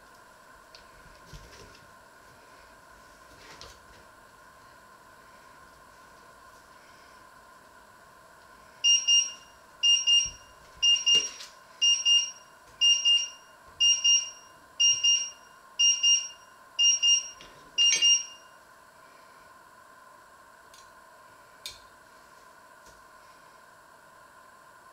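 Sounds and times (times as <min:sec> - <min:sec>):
high double beep: 0:08.9 - 0:18.4.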